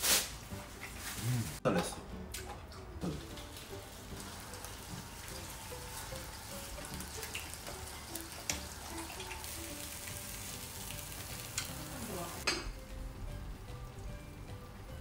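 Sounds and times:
food sizzling on a grill: 3.0s - 14.9s.

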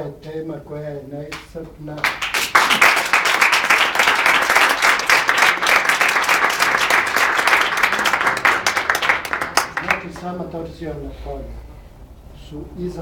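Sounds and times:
audience applauding: 2.0s - 10.4s.

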